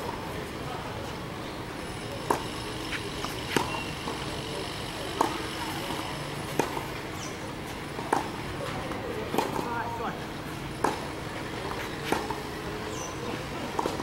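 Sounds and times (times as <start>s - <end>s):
tennis balls struck by rackets: 2.2s - 4.4s, 5.1s - 7.3s, 8.0s - 9.9s, 10.8s - 14.0s.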